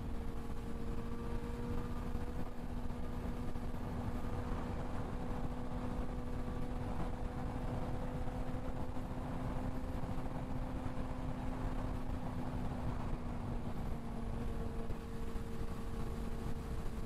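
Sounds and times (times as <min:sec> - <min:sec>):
motorcycle engine cruising: 0:00.0 - 0:17.0.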